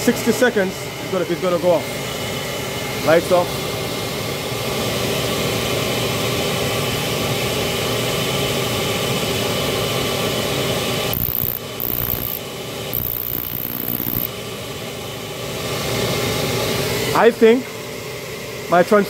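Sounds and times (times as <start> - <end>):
blower rushing: 9.0 - 17.6
high-pitched spark hiss: 11.1 - 12.4, 13.0 - 14.3.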